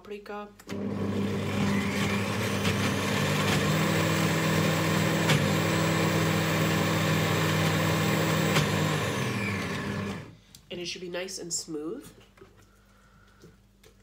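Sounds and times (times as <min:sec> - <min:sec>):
blender motor running: 0:00.7 - 0:10.3.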